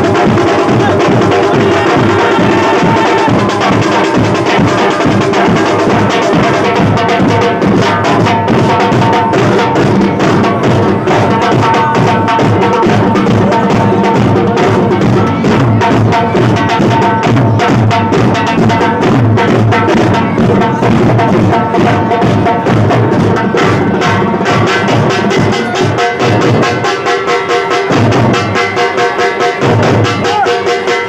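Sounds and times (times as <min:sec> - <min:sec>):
drummers beating bass and snare drums: 0:00.0 - 0:31.0.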